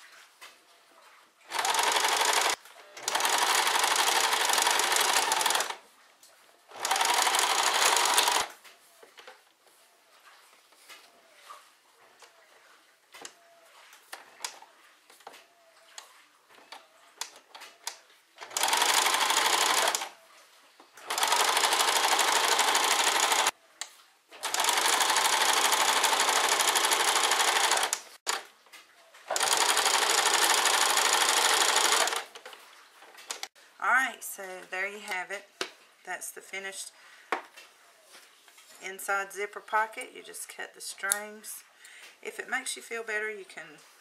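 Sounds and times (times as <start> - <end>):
sewing machine stitching: 1.5 - 5.8, 6.7 - 8.5, 17.8 - 20.2, 21.0 - 23.5, 24.4 - 28.4, 29.3 - 32.4.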